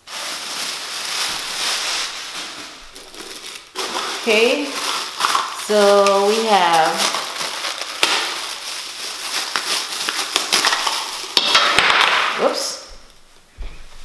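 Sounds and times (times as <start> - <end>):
plastic bag crinkling: 0.0 - 13.3.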